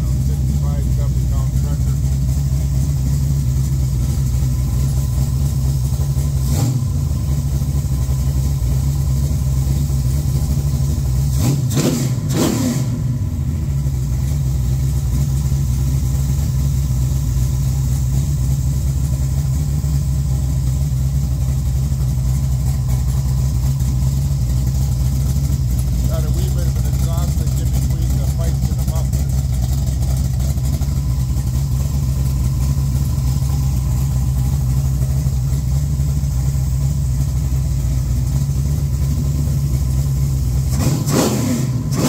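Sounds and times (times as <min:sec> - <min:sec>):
engine running and revving: 0:06.3 - 0:07.4, 0:11.3 - 0:13.4, 0:39.8 - 0:42.0.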